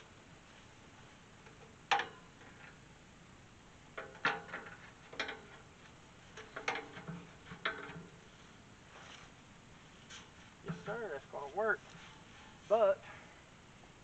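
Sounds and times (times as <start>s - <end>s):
metal gate clanking: 1.6s - 2.8s, 3.9s - 5.7s, 6.3s - 8.2s.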